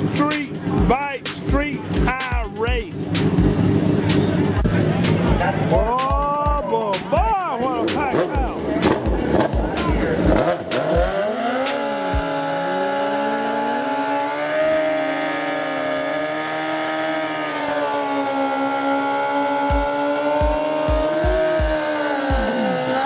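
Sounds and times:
dull low thumps: 0.0s - 11.2s, 19.7s - 22.5s
motorcycle engines revving high: 0.0s - 23.0s.

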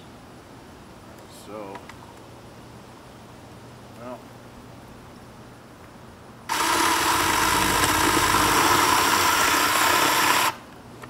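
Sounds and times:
electric chainsaw cutting wood: 6.5s - 10.6s.

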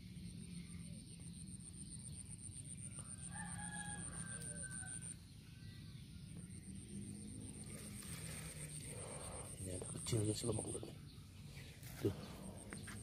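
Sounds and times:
rooster crowing: 3.0s - 5.2s.

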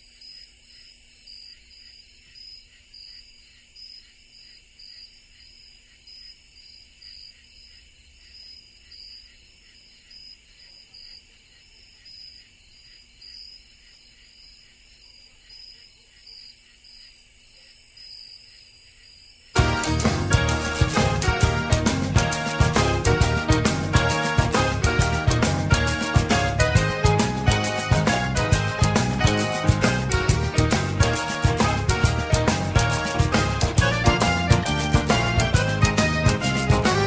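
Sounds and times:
crickets chirping: 0.0s - 19.6s.

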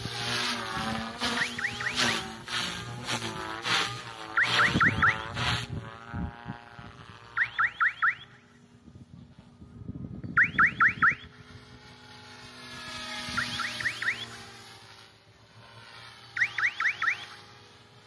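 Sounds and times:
electric rc helicopter whine: 0.0s - 18.0s
quick rising chirps: 13.2s - 14.4s.

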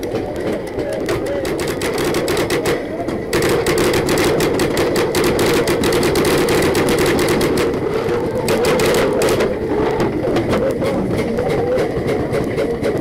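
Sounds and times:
paintball marker firing rapidly: 1.0s - 9.6s.

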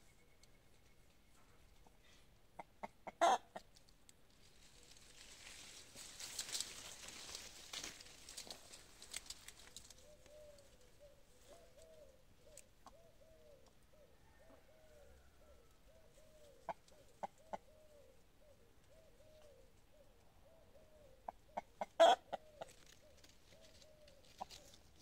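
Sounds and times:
hen clucking softly: 1.4s - 3.8s, 9.4s - 25.0s.

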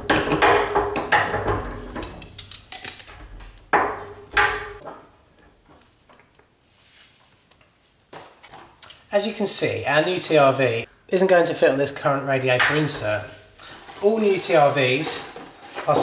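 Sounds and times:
metal tools clanking on valve: 13.6s - 16.0s.

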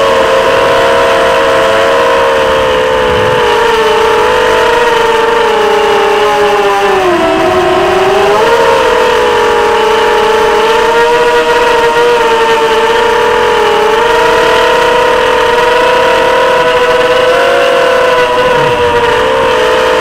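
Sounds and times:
drone motors whining: 0.0s - 20.0s.

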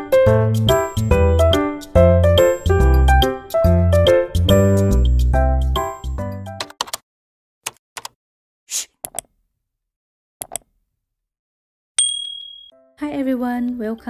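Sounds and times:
music: 0.0s - 6.7s, 12.7s - 14.0s
mouse clicks: 10.4s - 10.7s
bell ding: 12.0s - 12.8s.

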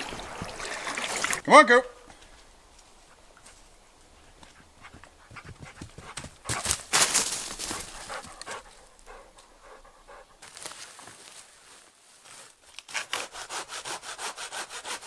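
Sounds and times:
dog panting: 4.4s - 6.8s, 7.6s - 10.4s.

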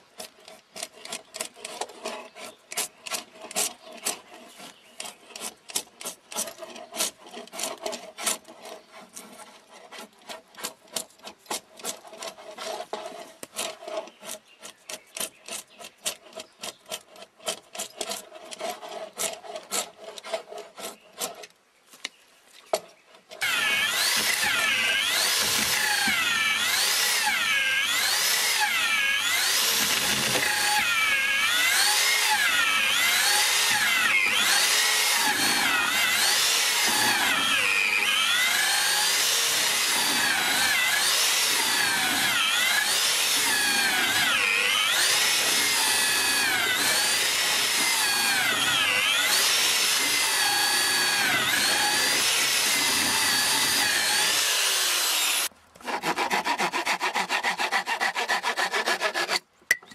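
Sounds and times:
drawknife scraping wood: 0.0s - 21.6s, 55.0s - 59.5s
electric drill whining: 23.4s - 55.5s.

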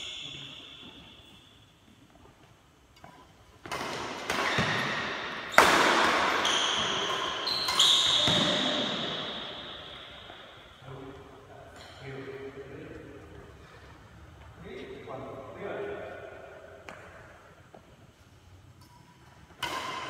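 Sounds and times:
rackets hitting shuttlecock: 2.9s - 10.8s, 16.4s - 17.8s, 18.8s - 20.0s.

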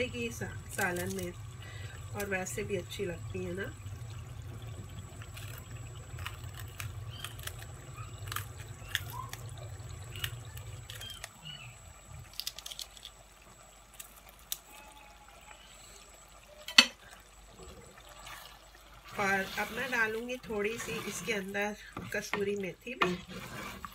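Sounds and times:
low steady hum: 0.0s - 23.9s
wet drips: 0.4s - 14.8s.

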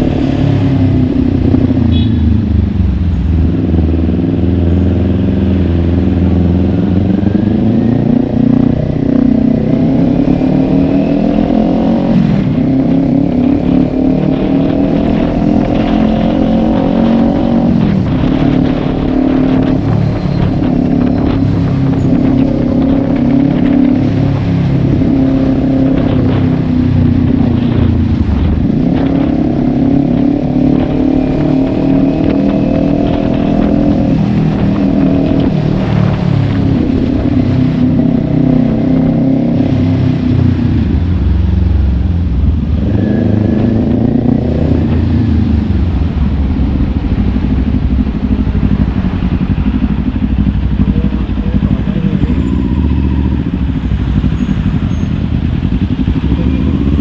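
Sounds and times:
motorcycle engine shifting gears: 0.0s - 57.0s.

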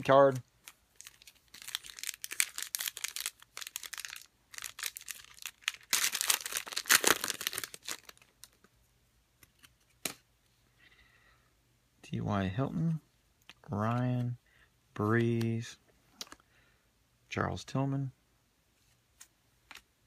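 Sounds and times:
plastic wrapper crinkling: 0.0s - 8.7s
wrapper tearing open: 1.0s - 8.6s.

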